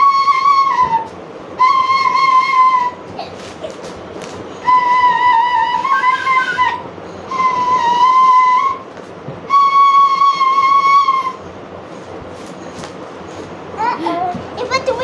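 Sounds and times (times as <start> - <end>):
bamboo flute long notes: 0.0 - 3.1, 4.6 - 8.9, 9.5 - 11.5.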